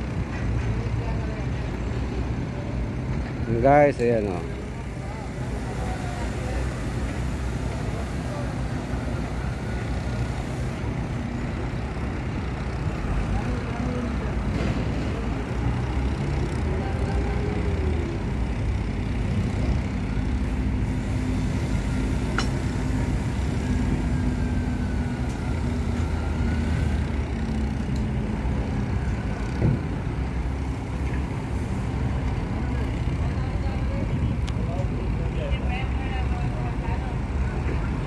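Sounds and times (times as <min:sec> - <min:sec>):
crane engine humming: 0:00.0 - 0:38.0
sharp click: 0:22.3 - 0:22.6.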